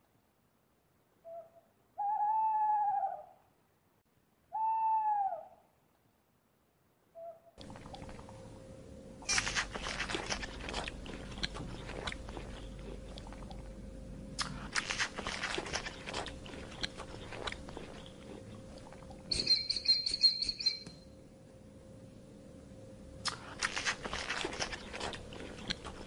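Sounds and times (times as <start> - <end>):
giraffe chewing twigs and leaves: 9.2 - 13.8, 14.4 - 19.4, 23.3 - 26.0
short high chirping call: 19.3 - 21.0.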